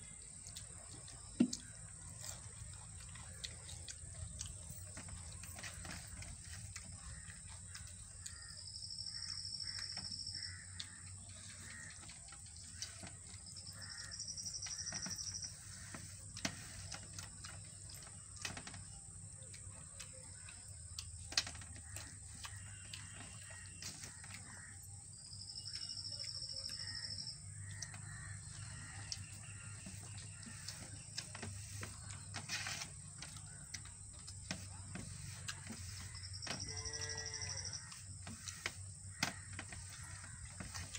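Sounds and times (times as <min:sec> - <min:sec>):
clicks and smacks of eating: 0:00.0 - 0:40.9
high animal call: 0:34.5 - 0:40.9.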